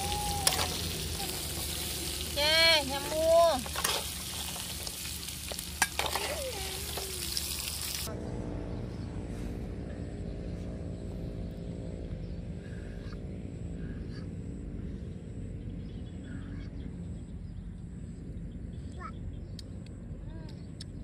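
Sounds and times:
food sizzling in a hot wok: 0:00.0 - 0:08.1
low outdoor hum: 0:00.0 - 0:21.0.

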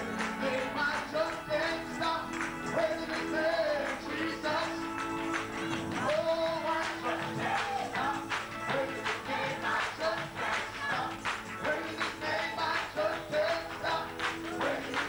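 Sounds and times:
choir and congregation singing: 0:00.0 - 0:15.0
handclaps: 0:00.0 - 0:15.0
man singing into a microphone: 0:00.5 - 0:04.9, 0:05.9 - 0:09.6.

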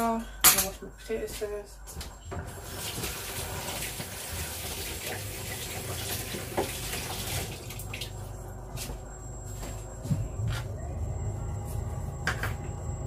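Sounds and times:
tap running into a sink: 0:05.9 - 0:07.4.

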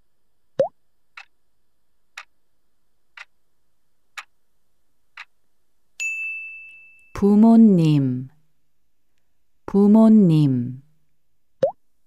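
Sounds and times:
ringing chime: 0:06.0 - 0:07.2.

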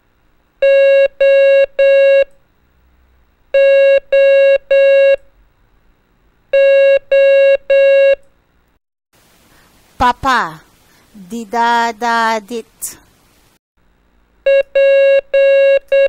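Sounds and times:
morse code beeps: 0:14.5 - 0:16.0.

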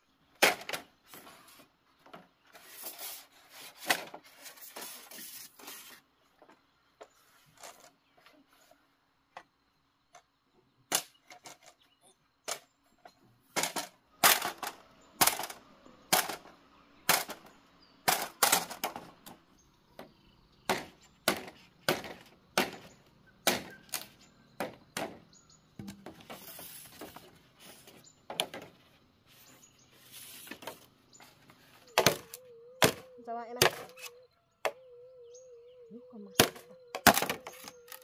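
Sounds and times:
knife chopping bamboo: 0:20.7 - 0:23.8.

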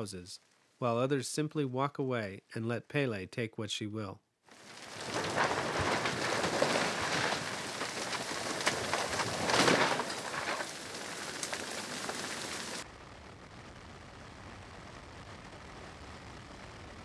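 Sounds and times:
crackling and popping fire: 0:04.5 - 0:17.0.

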